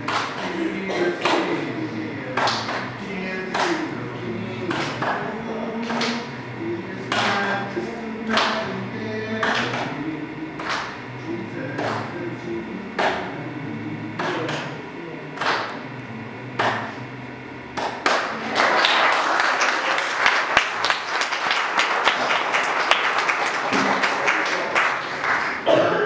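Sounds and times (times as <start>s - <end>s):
congregation applauding: 0.0s - 10.0s, 10.6s - 12.2s, 17.8s - 25.8s.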